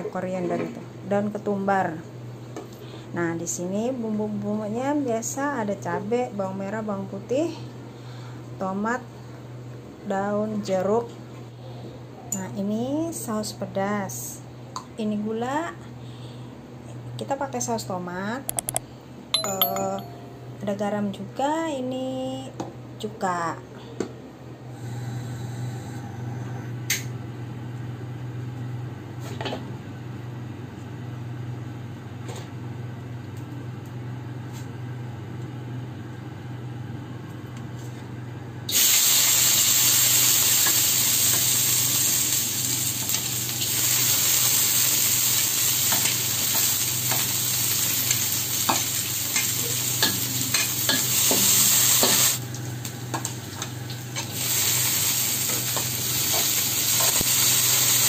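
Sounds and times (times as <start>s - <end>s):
gas burner hum: 24.0s - 58.0s
food sizzling in hot oil: 38.7s - 52.4s, 53.4s - 58.0s.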